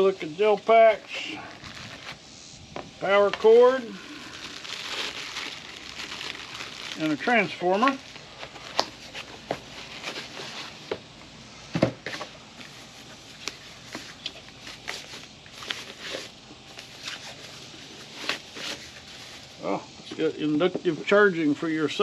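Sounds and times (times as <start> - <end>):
cardboard and wrapping rustling: 0.4 - 2.2, 3.0 - 11.0, 11.9 - 19.7.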